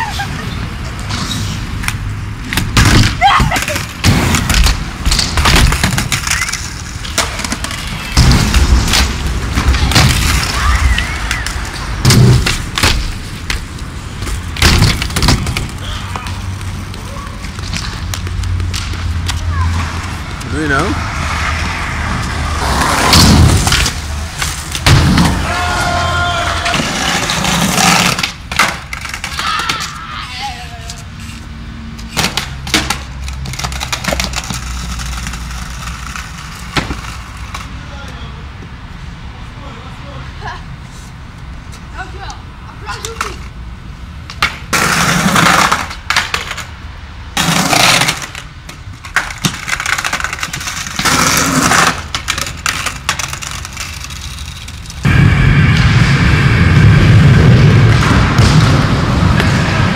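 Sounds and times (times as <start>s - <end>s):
skateboard wheels rolling on concrete: 0.0s - 59.9s
skateboard clacking on ground: 1.8s - 20.5s, 26.4s - 31.1s, 32.0s - 38.2s, 42.2s - 43.6s, 44.2s - 46.8s, 47.4s - 55.0s
skateboard clacks: 26.4s - 30.0s, 32.0s - 37.7s, 44.2s - 46.7s, 47.4s - 55.0s.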